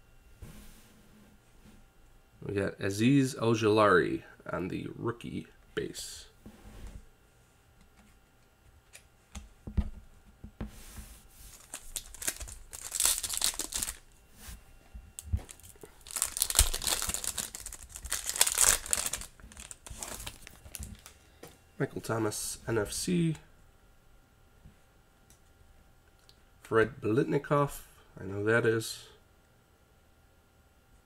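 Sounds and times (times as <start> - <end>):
foil pack tearing and crinkling: 11.5 - 14.0, 15.4 - 21.2.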